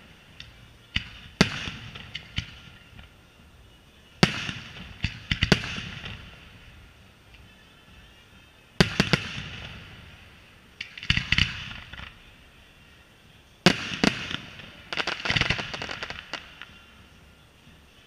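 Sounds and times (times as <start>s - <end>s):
firework crackling: 0.0s - 18.0s
firework shells bursting: 13.6s - 16.8s.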